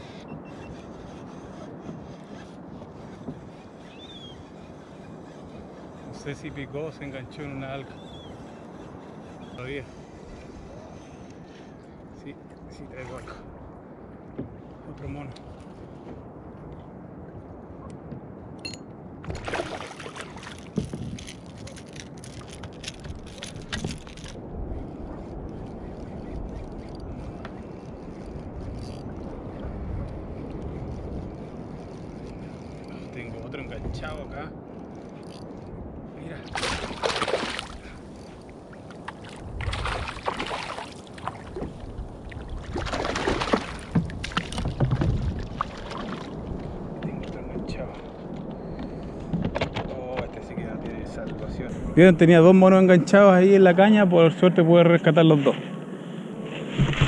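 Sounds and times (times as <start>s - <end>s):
water and wind wash: 0.0s - 57.0s
water sloshing: 19.2s - 24.4s, 36.4s - 48.4s, 56.5s - 57.0s
fish splashing and flapping: 19.3s - 33.0s, 36.5s - 46.8s, 56.5s - 57.0s.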